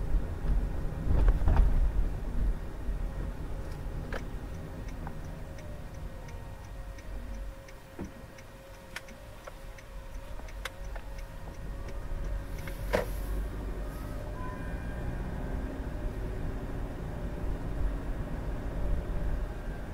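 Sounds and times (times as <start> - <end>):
car driving rumble: 0.0 - 19.9
turn signal ticking: 3.5 - 14.4.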